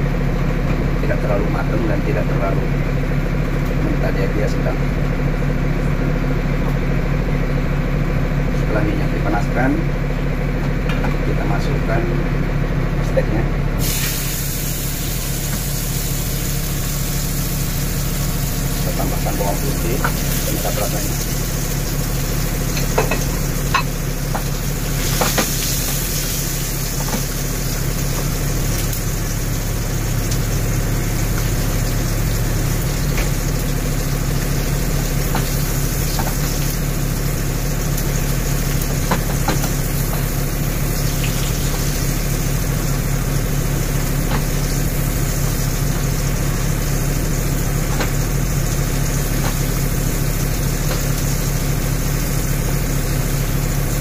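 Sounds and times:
steady low hum: 0.0 - 54.0
steak sizzling in a grill pan: 13.8 - 54.0.

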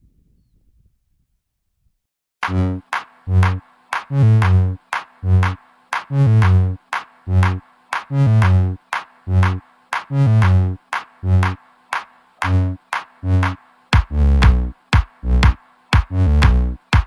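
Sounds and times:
punchy synth bass notes: 2.4 - 11.6, 12.4 - 16.9
drum machine beat: 2.4 - 17.0.

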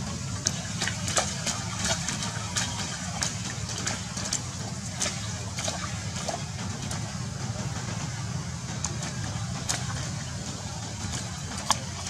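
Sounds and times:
monkeys splashing in a puddle: 0.0 - 12.0
steady low hum: 0.0 - 12.0.

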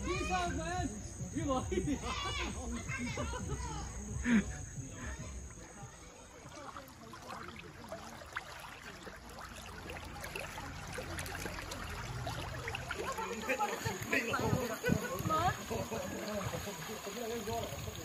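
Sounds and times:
stream babbling over stones: 6.0 - 18.0.

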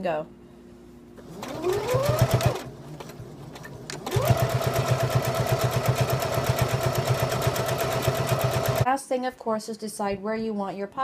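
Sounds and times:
sewing machine stitching: 1.2 - 8.8.

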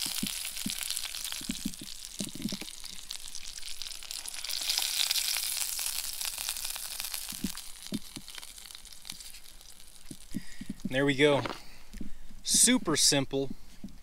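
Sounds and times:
fish sizzling in a pan: 0.0 - 11.0.

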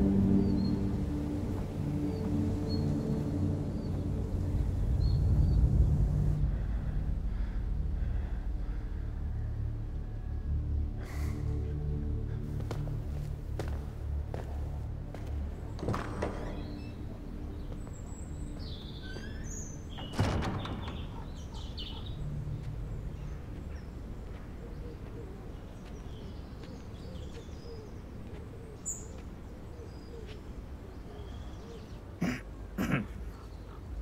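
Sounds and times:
steady low rumble: 0.0 - 15.8, 21.4 - 29.9
birds chirping: 0.0 - 34.0.

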